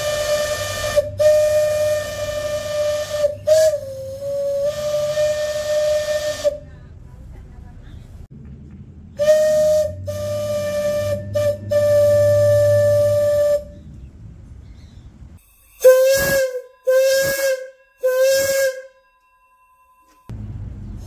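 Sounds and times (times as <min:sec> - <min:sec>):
shrill steam whistle blasts: 0:00.0 - 0:06.6, 0:09.2 - 0:13.8, 0:15.4 - 0:19.1.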